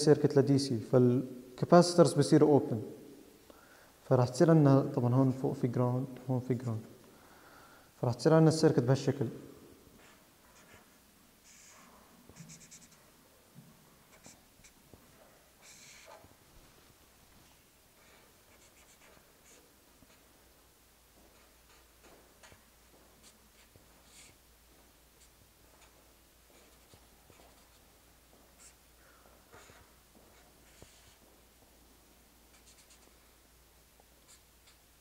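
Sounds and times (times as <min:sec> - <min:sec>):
marker scratching on paper: 0:10.0 - 0:13.1, 0:14.1 - 0:14.8, 0:15.6 - 0:16.3, 0:18.0 - 0:20.3, 0:21.3 - 0:22.6, 0:23.2 - 0:24.4, 0:25.2 - 0:27.9, 0:28.5 - 0:28.8, 0:29.5 - 0:31.3, 0:32.5 - 0:33.2, 0:34.2 - 0:34.8.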